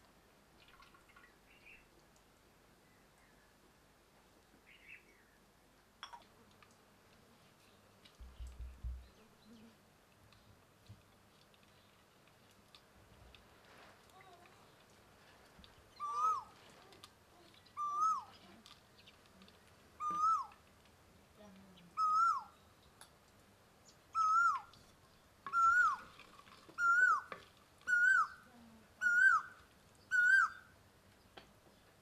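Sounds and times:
animal calling: 0:16.0 - 0:16.9, 0:17.7 - 0:18.5, 0:20.0 - 0:20.6, 0:21.9 - 0:22.6, 0:24.1 - 0:24.8, 0:25.5 - 0:26.2, 0:26.8 - 0:30.7.

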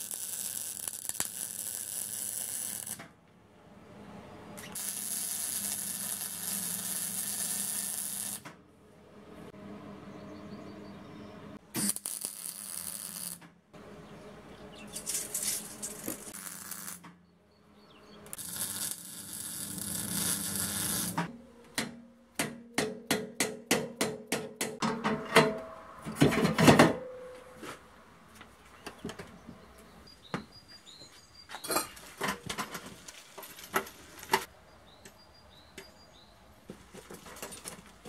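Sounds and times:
welder arc crackling hiss: 0:00.0 - 0:03.0, 0:04.8 - 0:08.4, 0:11.8 - 0:13.4, 0:15.2 - 0:17.0, 0:18.4 - 0:21.3.

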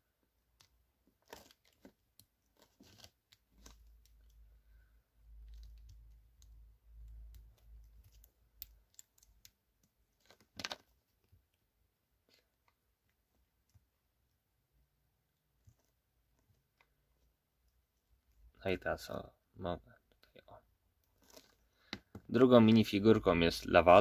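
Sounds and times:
low rumble of hands handling pieces: 0:00.1 - 0:18.6.

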